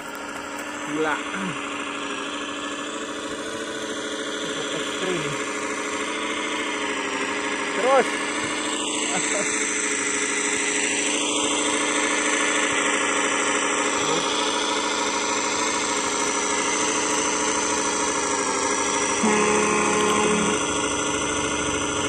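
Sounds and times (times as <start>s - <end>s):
model truck mechanical drone: 0.0s - 22.0s
brief extra tone: 19.2s - 21.4s.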